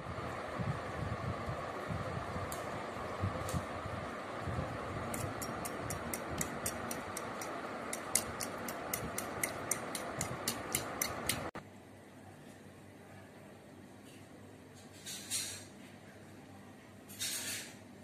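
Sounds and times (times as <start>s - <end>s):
fork beating eggs in bowl: 5.0s - 11.6s.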